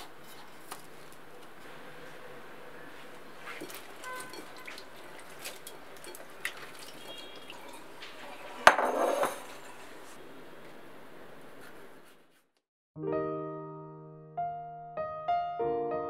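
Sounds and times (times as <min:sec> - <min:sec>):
wet fruit clicks and drips: 0:03.4 - 0:08.0
water splash: 0:03.4 - 0:08.4.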